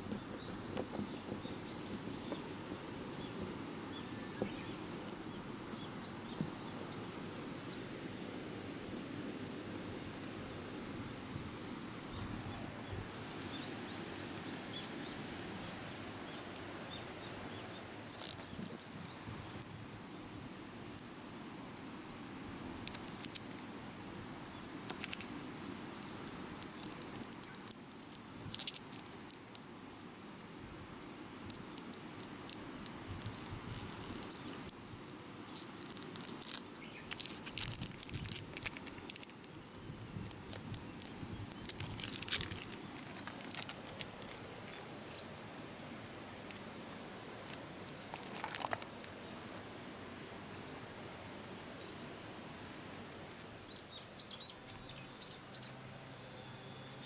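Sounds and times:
outdoor background noise: 0.0s - 57.0s
plastic film crinkling and crackling: 24.8s - 25.3s, 26.0s - 29.5s, 33.1s - 34.8s, 35.5s - 39.6s, 40.2s - 44.8s, 47.5s - 49.1s.

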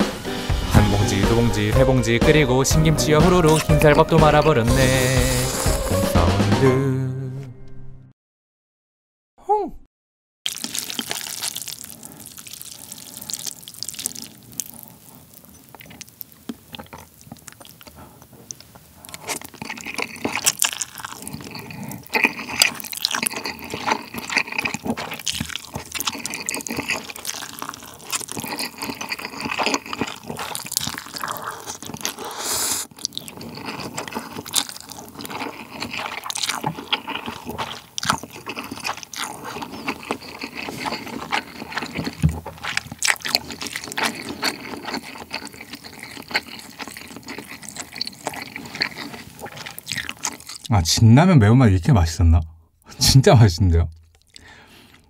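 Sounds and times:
person slurping noodles: 4.7s - 6.0s, 10.5s - 16.1s, 16.8s - 50.7s
sipping broth: 10.5s - 50.7s.

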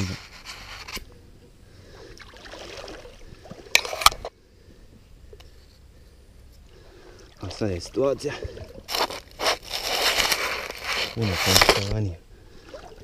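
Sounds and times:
grass rustling over camera: 0.0s - 1.1s, 8.8s - 12.1s
legs wading through water: 1.9s - 4.1s.

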